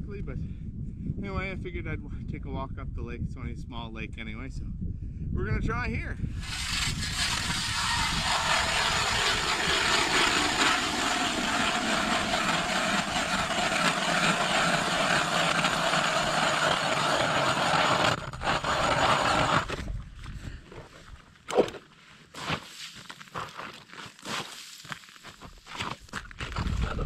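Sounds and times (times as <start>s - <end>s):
ice auger motor boring: 6.4s - 20.0s.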